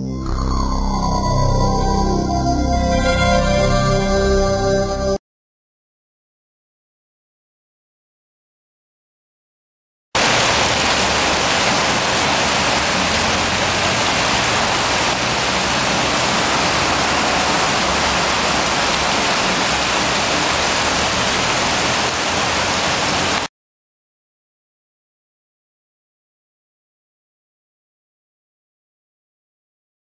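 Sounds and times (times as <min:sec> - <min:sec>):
heavy rain hissing: 0:10.2 - 0:23.5.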